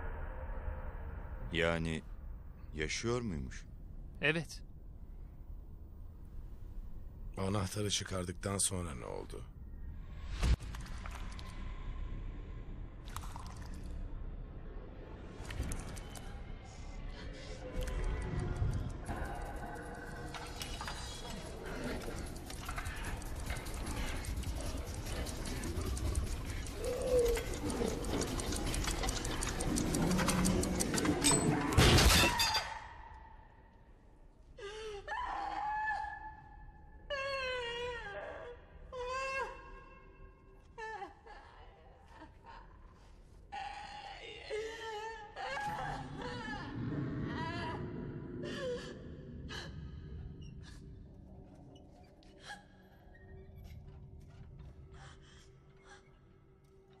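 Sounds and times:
rapid mechanical ticking: 0:21.2 - 0:31.5
woman sobbing: 0:40.7 - 0:46.8.

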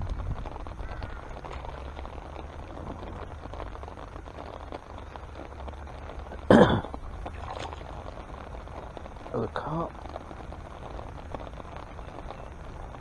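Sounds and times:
low background rumble: 0:00.0 - 0:13.0
fish splashing in water: 0:07.2 - 0:08.3.

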